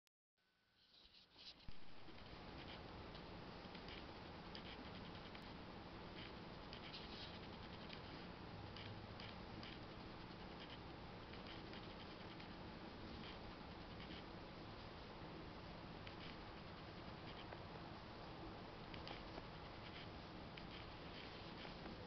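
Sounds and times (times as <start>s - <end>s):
steady low hiss: 0.5s - 22.0s.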